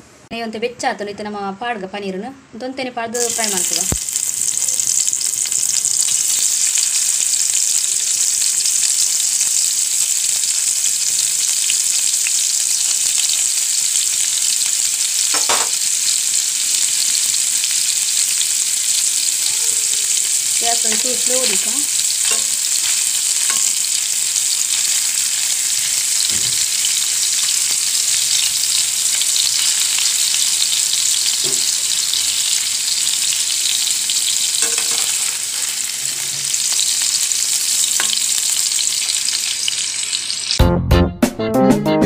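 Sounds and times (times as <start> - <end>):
frying hiss: 3.2 - 40.6
metal spatula taps and scrapes: 34.6 - 35.1.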